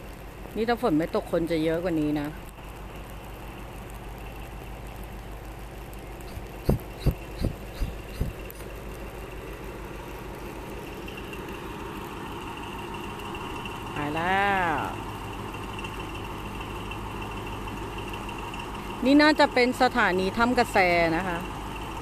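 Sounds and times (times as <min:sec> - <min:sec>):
diesel locomotive rumble: 0:00.0 - 0:22.0
dull thumps: 0:06.3 - 0:08.7.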